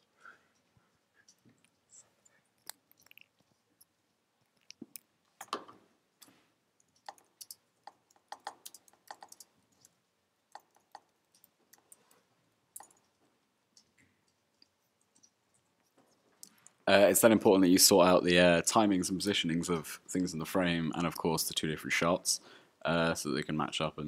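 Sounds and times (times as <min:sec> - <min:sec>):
mouse and keyboard clicking: 0:06.9 - 0:09.9, 0:10.5 - 0:12.2, 0:12.8 - 0:13.1.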